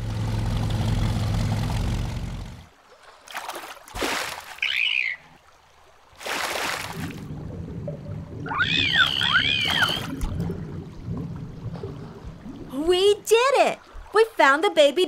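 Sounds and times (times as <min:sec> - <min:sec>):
cartoon vehicle engine humming: 0:00.0 - 0:02.7
water splashes: 0:00.3 - 0:15.0
rushing splash: 0:01.2 - 0:04.8, 0:06.1 - 0:12.8
falling dolphin whistle: 0:08.5 - 0:10.2.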